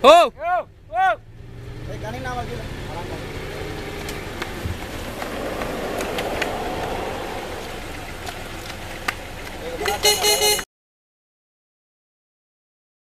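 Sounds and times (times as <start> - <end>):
traffic hiss: 2.5 - 10.6.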